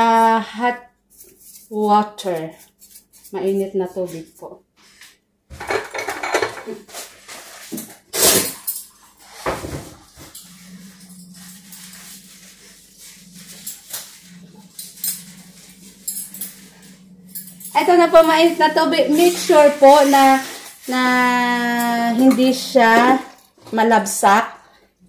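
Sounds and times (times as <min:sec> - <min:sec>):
dishes and utensils clinking: 0:05.5 - 0:12.5, 0:13.3 - 0:23.5
steady low hum: 0:09.4 - 0:20.0.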